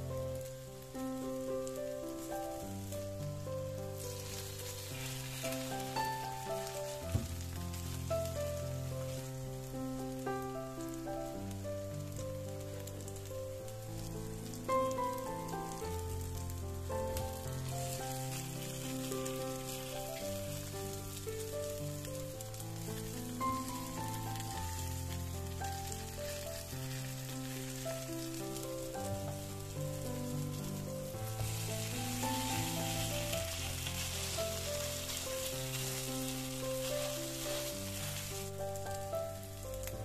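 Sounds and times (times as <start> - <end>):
background music: 0.0 - 40.0
food sizzling in a pan: 0.0 - 40.0.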